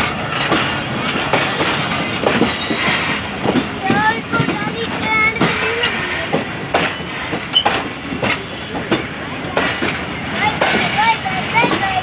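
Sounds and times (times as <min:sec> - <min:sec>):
train wheels clacking on rails: 0:00.0 - 0:12.0
wheels squealing: 0:01.4 - 0:03.1.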